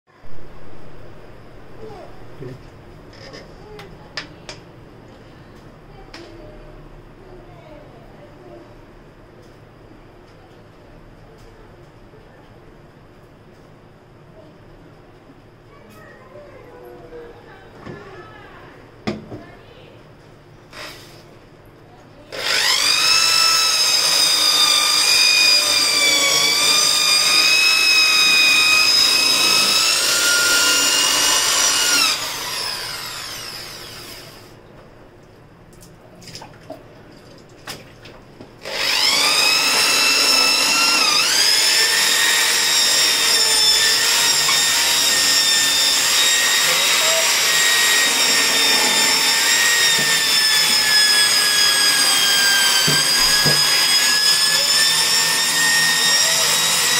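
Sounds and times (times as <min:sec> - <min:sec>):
electric drill with scrubbing brush: 0:20.7 - 0:21.2, 0:22.3 - 0:34.6, 0:38.6 - 0:56.9.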